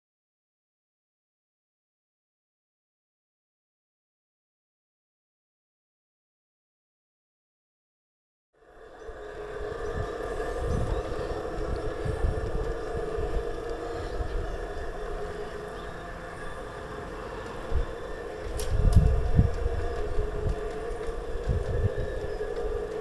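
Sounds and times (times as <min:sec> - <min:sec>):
model train humming: 0:08.6 - 0:23.0
wind buffeting microphone: 0:08.8 - 0:23.0.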